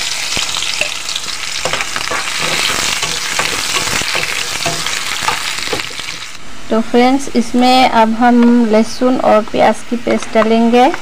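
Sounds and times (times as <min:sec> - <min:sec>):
onions sizzling in oil: 0:00.0 - 0:06.4
utensil scraping a pan: 0:01.2 - 0:06.4.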